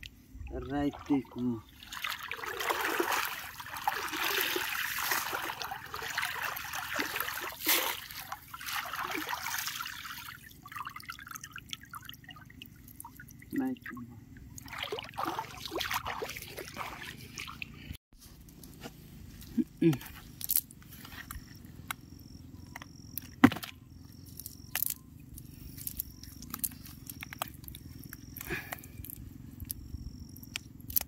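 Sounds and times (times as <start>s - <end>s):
water sloshing and splashing: 0.0s - 18.0s.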